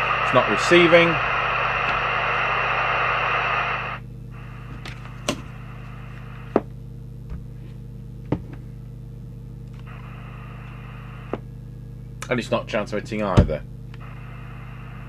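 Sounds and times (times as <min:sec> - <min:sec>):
radio speaker hiss: 0:00.0 - 0:06.7, 0:09.8 - 0:11.5, 0:12.6 - 0:15.0
steady low hum: 0:00.0 - 0:15.0.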